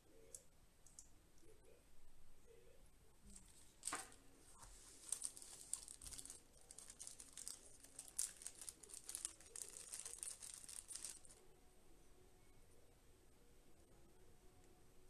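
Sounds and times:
plastic bags crinkling: 0:03.3 - 0:11.4.

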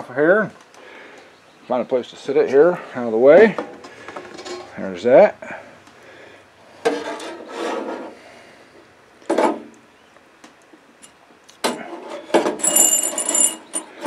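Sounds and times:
wire basket rattling against metal tank: 0:12.4 - 0:14.0.

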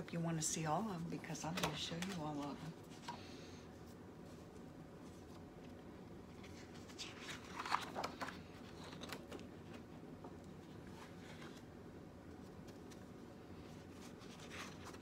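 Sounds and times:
faint steady hum: 0:00.0 - 0:15.0
paper pages rustling: 0:01.5 - 0:03.2, 0:03.8 - 0:15.0.

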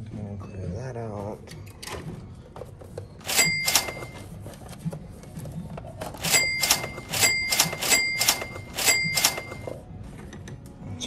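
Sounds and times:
sharp metallic clicks: 0:03.2 - 0:04.2, 0:06.2 - 0:09.7.

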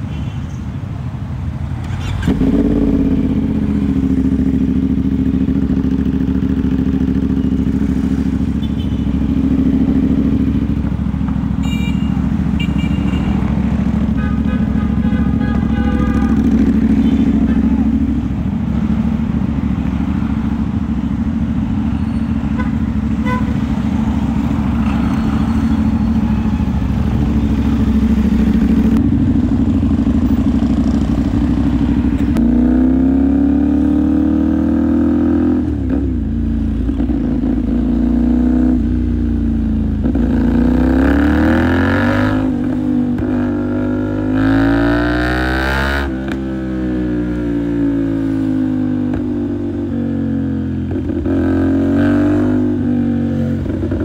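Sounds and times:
road and wind noise: 0:00.0 - 0:54.0
motorcycle engine shifting gears: 0:01.8 - 0:08.6, 0:24.2 - 0:39.2.

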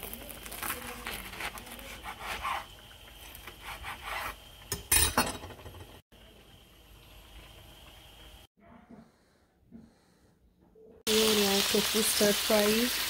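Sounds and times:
knife sawing through crunchy fritters: 0:00.0 - 0:04.4.

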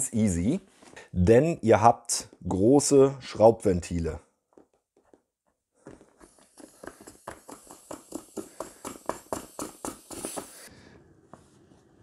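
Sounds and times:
sharp hiss of escaping air: 0:07.4 - 0:10.8.

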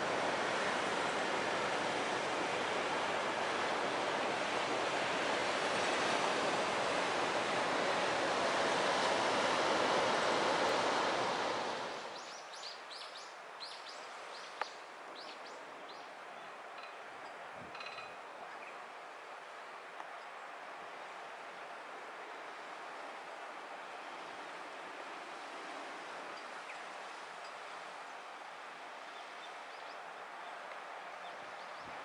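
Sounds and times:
storm wind: 0:00.0 - 0:12.3
surf on the coast: 0:00.0 - 0:32.0.

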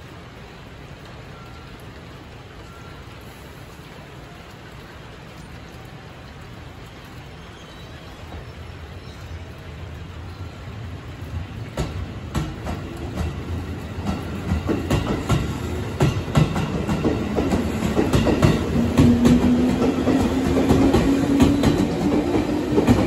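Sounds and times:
steady hiss: 0:00.0 - 0:04.8, 0:07.4 - 0:23.0
low hum of train motors: 0:09.4 - 0:23.0
wheels clicking over rail joints: 0:10.8 - 0:23.0.

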